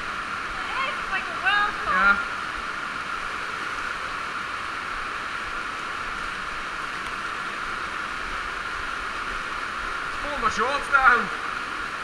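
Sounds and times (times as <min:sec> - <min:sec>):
stream rushing in a cave: 0:00.0 - 0:12.0.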